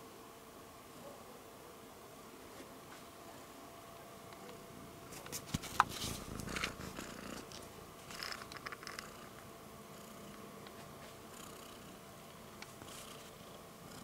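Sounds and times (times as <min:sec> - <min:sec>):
fur rubbing against camera: 0:05.1 - 0:07.5
cat purring: 0:05.9 - 0:14.0.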